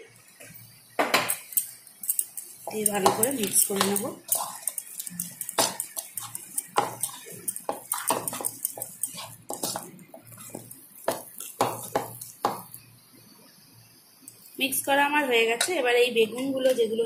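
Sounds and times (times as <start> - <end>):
spoon stirring thick mixture: 1.3 - 12.8
spoon knocking against bowl: 10.5 - 12.7.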